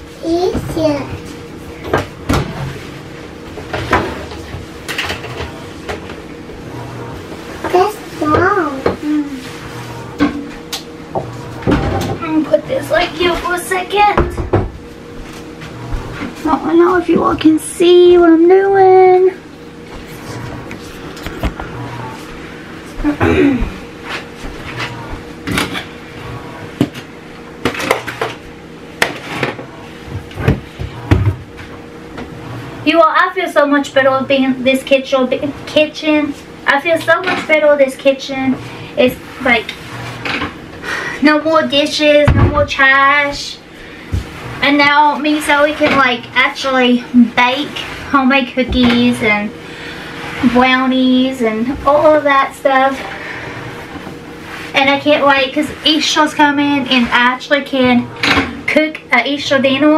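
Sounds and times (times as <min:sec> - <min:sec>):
low steady hum: 0:00.0 - 0:59.9
items knocking on wooden countertop: 0:29.0 - 0:31.4.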